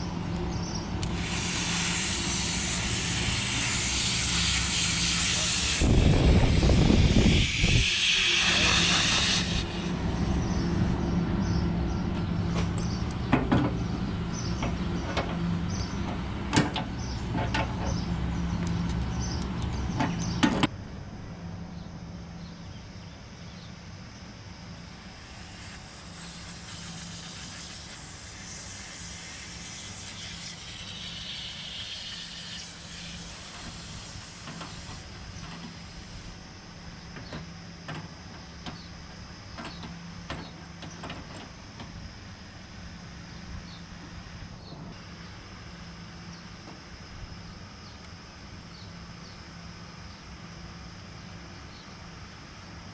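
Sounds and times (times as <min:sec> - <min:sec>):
faint hiss: 0:24.8 - 0:36.4.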